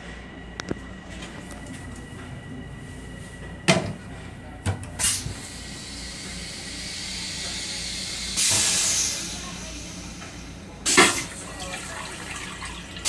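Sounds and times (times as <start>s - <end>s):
railcar rumble: 0.0s - 13.0s
toilet flush water hissing: 5.0s - 13.0s.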